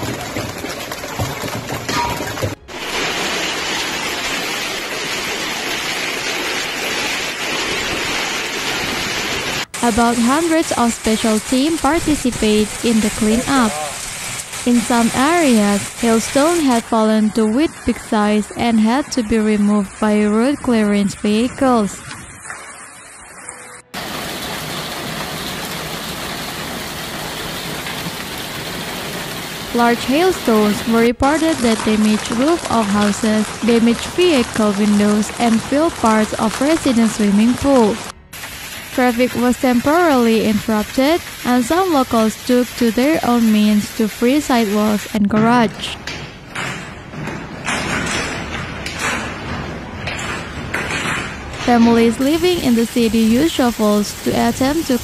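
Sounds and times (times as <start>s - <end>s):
hail and heavy rain on pavement: 0.0s - 16.8s, 24.0s - 45.2s, 50.2s - 55.0s.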